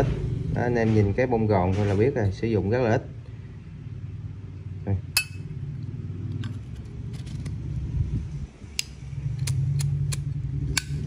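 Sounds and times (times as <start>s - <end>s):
low hum: 3.0s - 11.0s.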